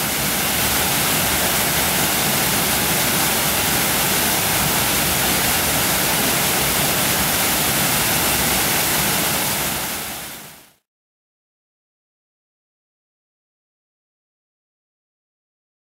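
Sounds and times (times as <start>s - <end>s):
water rushing over weir: 0.0s - 10.8s.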